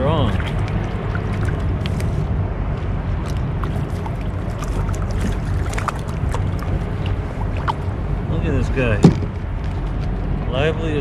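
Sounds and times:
small water splashes: 0:00.0 - 0:02.3, 0:03.1 - 0:08.3
water and wind rushing: 0:00.0 - 0:11.0.

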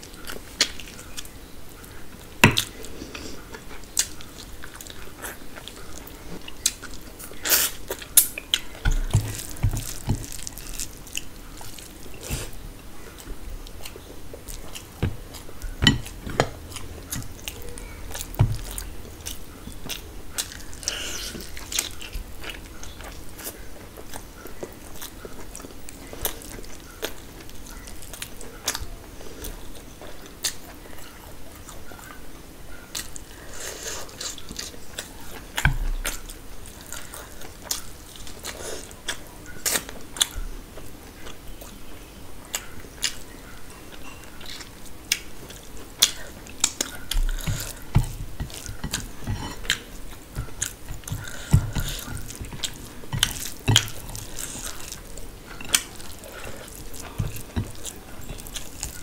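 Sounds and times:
person chewing food: 0:00.0 - 0:32.2, 0:32.9 - 0:59.0
dull low thuds: 0:15.0 - 0:19.1.

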